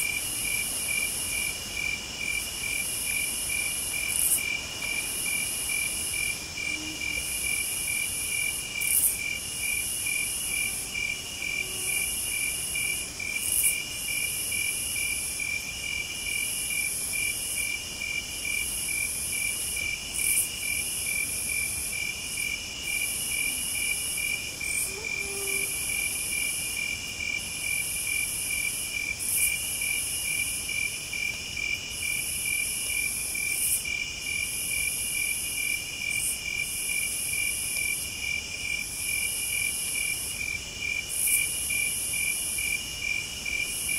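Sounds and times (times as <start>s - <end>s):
high shrill insect song: 0.0s - 43.9s
insect trilling: 23.0s - 27.0s.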